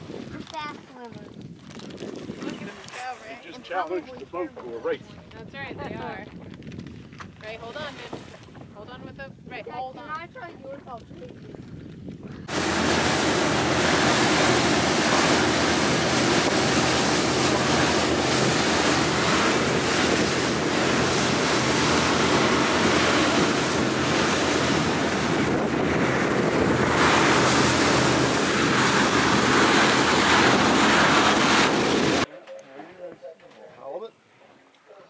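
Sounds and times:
wind blasting the microphone: 0.0 - 32.3
water rushing along hull: 2.2 - 5.3, 7.4 - 9.2, 12.5 - 32.3
low boat engine drone: 12.5 - 32.3.

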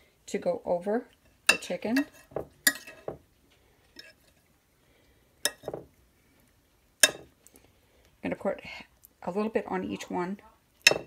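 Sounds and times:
utensils clinking on ceramic dish: 1.5 - 3.2.

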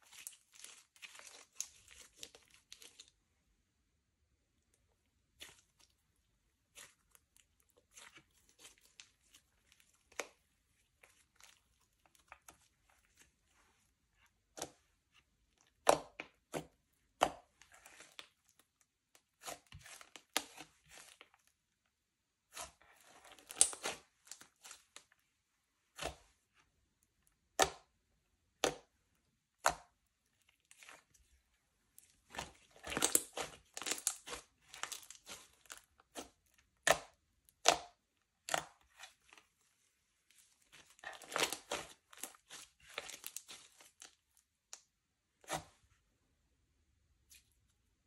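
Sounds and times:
slime squished by hand: 22.4 - 25.1, 32.0 - 39.5, 40.2 - 45.8.

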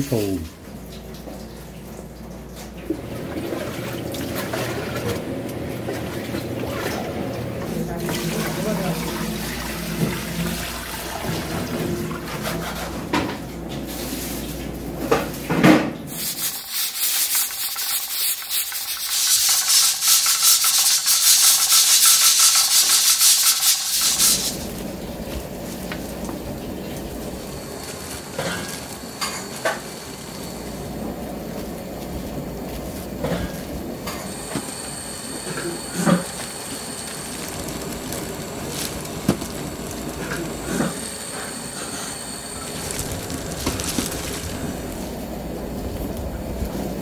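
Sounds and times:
pressure cooker hissing steam: 16.1 - 24.7, 27.2 - 31.2, 34.1 - 45.1
soft handling sounds: 37.0 - 40.6, 42.6 - 46.9.

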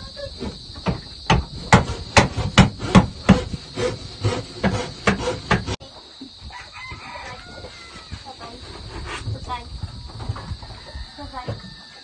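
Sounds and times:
hammer blows on wood: 0.4 - 5.8.

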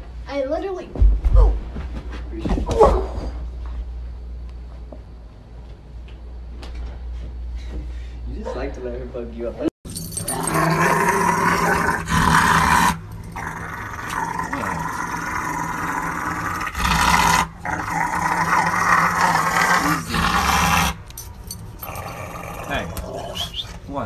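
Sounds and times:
dog growling: 10.2 - 21.0, 21.8 - 23.6.

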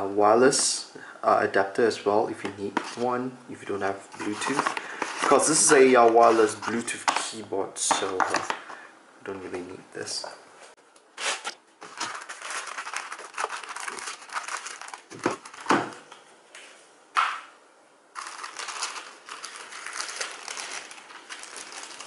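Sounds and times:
tissue paper crinkling: 11.3 - 16.0, 18.2 - 22.0.

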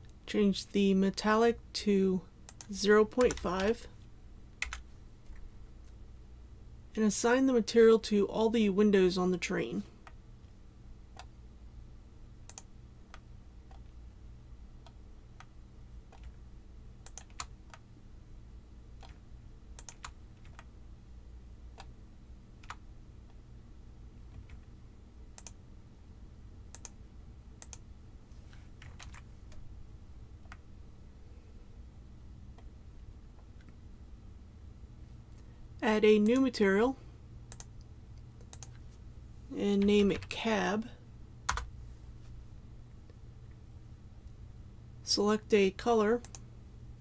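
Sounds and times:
low steady hum: 0.0 - 47.0
keyboard and mouse clicks: 2.5 - 3.7, 12.4 - 13.9, 16.1 - 16.4, 17.0 - 17.9, 19.0 - 19.2, 19.8 - 20.7, 24.3 - 24.7, 25.3 - 25.6, 26.7 - 27.0, 27.6 - 27.9, 30.4 - 30.6, 37.5 - 38.8.

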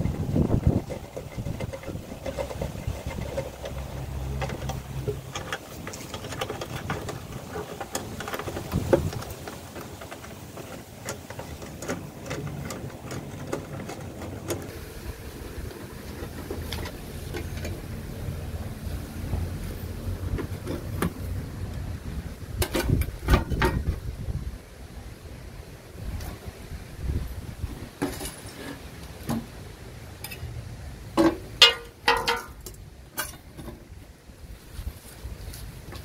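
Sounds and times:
screwdriver scraping metal frame: 0.0 - 14.7.

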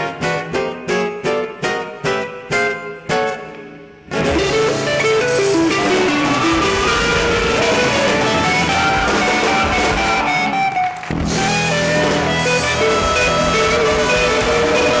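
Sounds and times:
live blues band: 0.0 - 15.0
horn section: 4.4 - 15.0.

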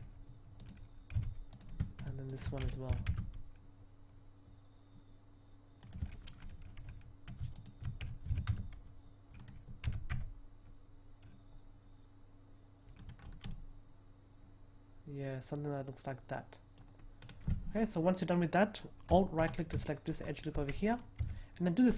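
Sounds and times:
faint steady hum: 0.0 - 21.9
keyboard and mouse clicks: 0.6 - 3.5, 5.8 - 10.3, 12.9 - 13.6, 19.1 - 19.9.

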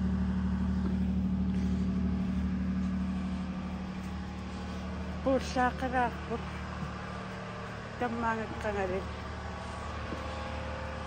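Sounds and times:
low machine hum: 0.0 - 11.0.

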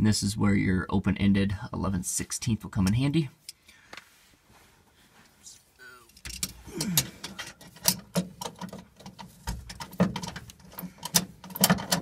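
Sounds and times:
wrench clicking on bolt: 6.2 - 12.0.

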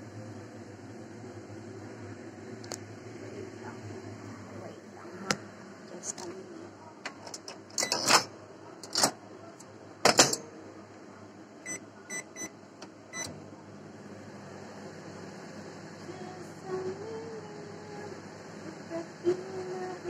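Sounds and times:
low steady hum: 9.3 - 20.0.

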